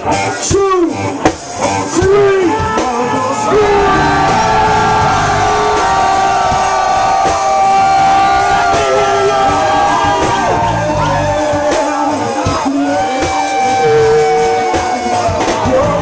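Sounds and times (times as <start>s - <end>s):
live hip-hop band playing: 0.0s - 16.0s
fans yelling: 2.6s - 16.0s
long held note: 3.5s - 8.7s.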